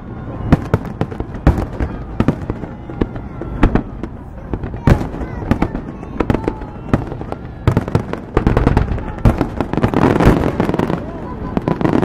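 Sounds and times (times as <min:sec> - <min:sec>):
fireworks bursting in bangs and pops: 0:00.4 - 0:12.0.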